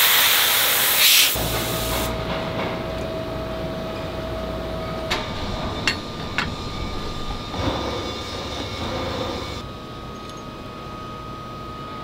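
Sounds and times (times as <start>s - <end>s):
sharp metal clanks: 5.8s - 6.7s.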